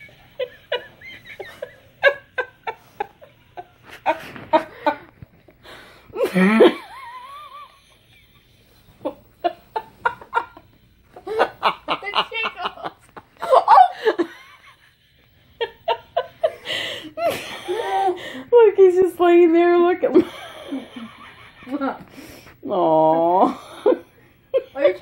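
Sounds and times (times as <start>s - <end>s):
woman's stifled laughter: 0.0s - 5.1s, 6.2s - 14.8s.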